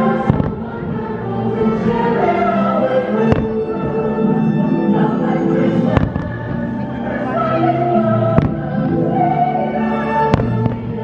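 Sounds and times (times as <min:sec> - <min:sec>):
fireworks bursts: 0:00.0 - 0:01.9, 0:03.2 - 0:04.0, 0:05.9 - 0:06.8, 0:08.1 - 0:08.8
choir singing over orchestral music: 0:00.0 - 0:11.0.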